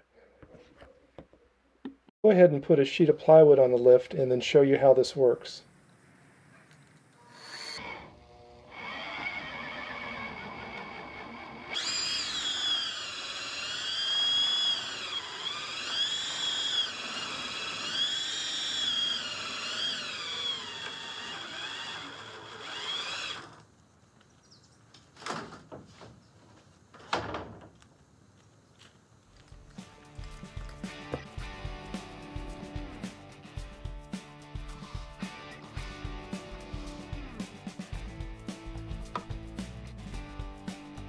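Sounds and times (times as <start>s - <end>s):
electric drill whining: 7.2s - 23.6s.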